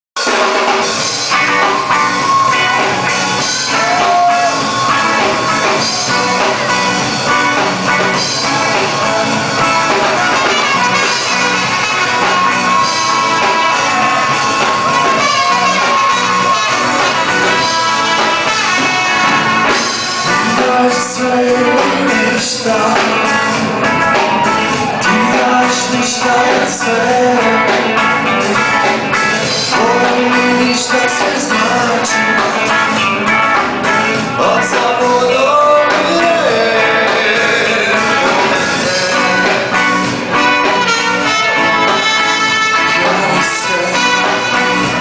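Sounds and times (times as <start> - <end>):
live rock band playing: 0.2 - 45.0
trumpet holding long note: 10.2 - 20.6, 38.9 - 45.0
man singing: 19.7 - 28.0, 28.8 - 33.0, 34.3 - 45.0.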